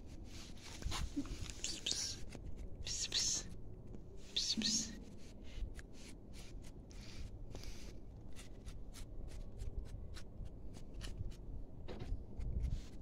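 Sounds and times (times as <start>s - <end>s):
handling rustle and clicks: 0.1s - 2.9s.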